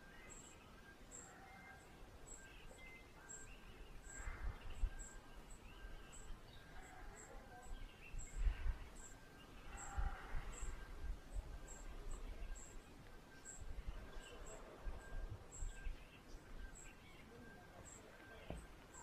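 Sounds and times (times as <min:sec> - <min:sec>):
faint birds calling: 0:00.0 - 0:19.0.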